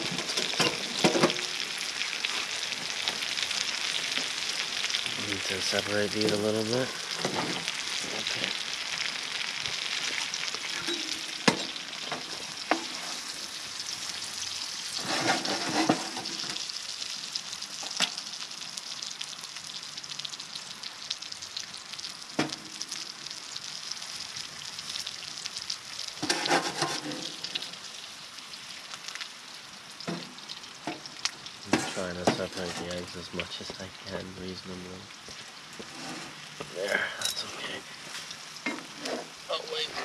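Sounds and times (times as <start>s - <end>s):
food sizzling in a frying pan: 0.0s - 40.0s
spatula scraping a pan: 10.8s - 13.6s, 14.9s - 16.6s, 26.2s - 27.7s, 35.8s - 36.5s.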